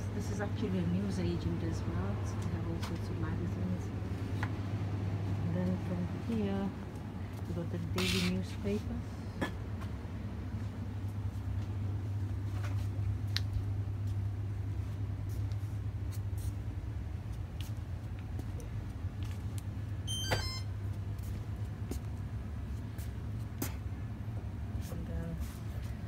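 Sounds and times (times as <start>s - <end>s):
low electrical hum: 0.0s - 26.0s
short high electronic beep: 20.1s - 20.7s.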